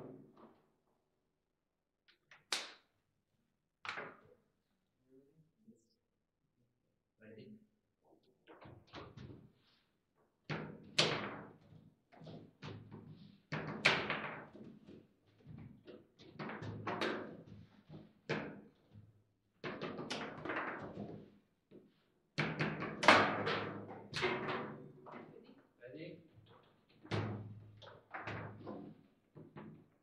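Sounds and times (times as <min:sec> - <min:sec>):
foosball clacks and thuds: 0:10.5 - 0:18.9, 0:19.6 - 0:25.3.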